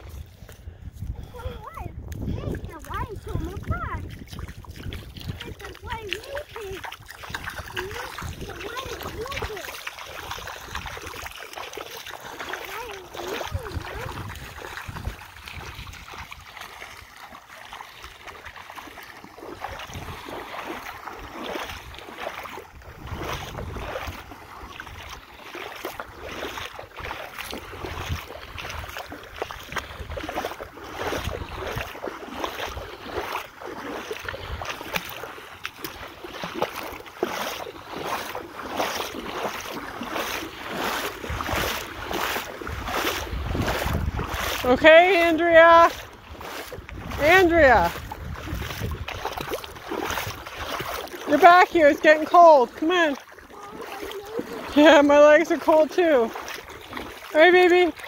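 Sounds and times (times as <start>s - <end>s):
wind buffeting microphone: 0.0s - 11.3s, 12.7s - 17.1s, 19.3s - 25.3s, 25.9s - 33.3s, 34.2s - 35.0s, 40.2s - 51.1s
feet splashing through water: 0.0s - 58.0s.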